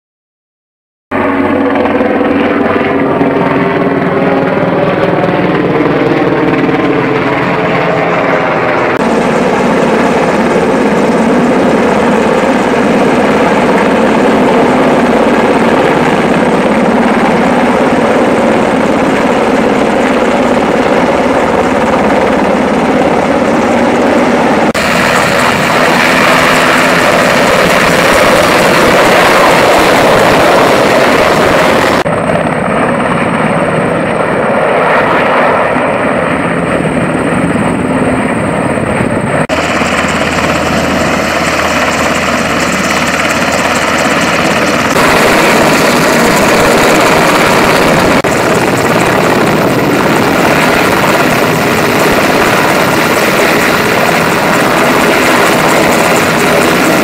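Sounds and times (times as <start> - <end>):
helicopter flying close by: 1.1 - 57.0.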